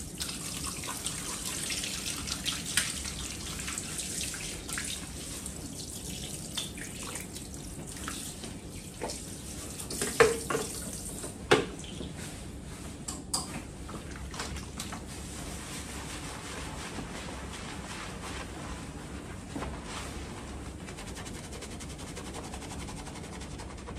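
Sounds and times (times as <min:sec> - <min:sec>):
shower water spraying into basin: 0:00.0 - 0:11.3.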